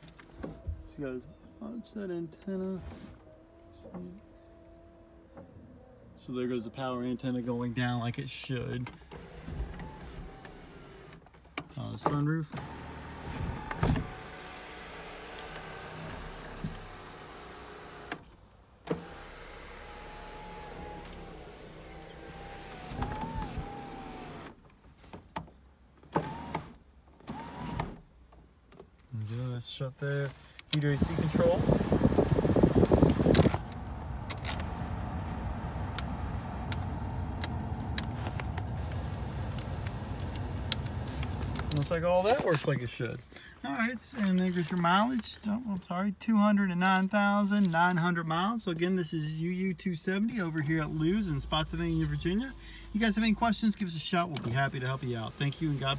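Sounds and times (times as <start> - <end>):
sunroof motor running: 19.0 - 24.5, 31.0 - 41.8
car heater blower fan: 19.0 - 24.6, 30.7 - 42.9.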